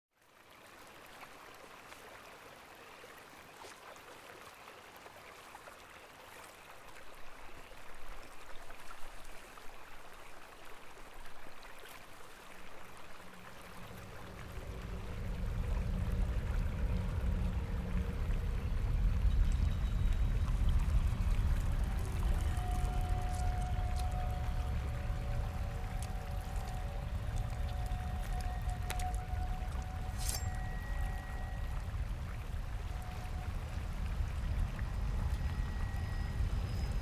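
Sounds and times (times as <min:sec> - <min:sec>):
water trickling: 0:00.2 - 0:37.0
low droning hum: 0:12.9 - 0:37.0.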